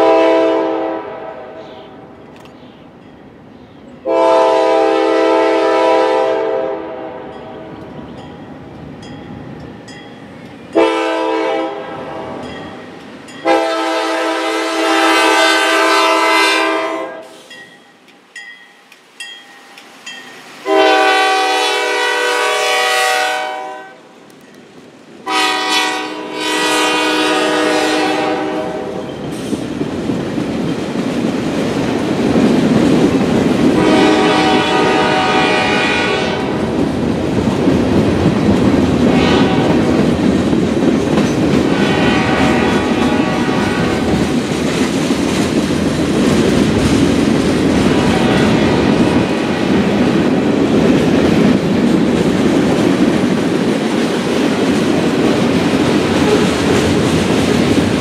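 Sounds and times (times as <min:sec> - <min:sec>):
locomotive air horn blasts: 0:00.0 - 0:02.0, 0:04.0 - 0:07.7, 0:10.8 - 0:12.5, 0:13.4 - 0:17.5, 0:20.6 - 0:24.1, 0:25.3 - 0:29.1, 0:33.8 - 0:36.7, 0:39.0 - 0:39.8, 0:41.7 - 0:44.2
freight train rumble: 0:00.0 - 0:58.0
wheel clatter over rail joints: 0:40.0 - 0:41.7.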